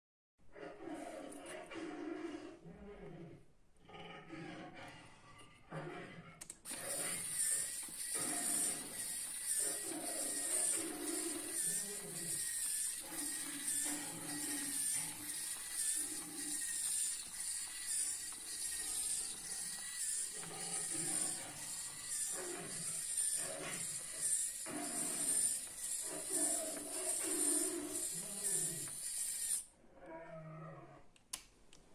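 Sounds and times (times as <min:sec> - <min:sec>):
gears ticking and clattering: 0:06.6 - 0:29.6
small electric motor whine: 0:06.7 - 0:29.7.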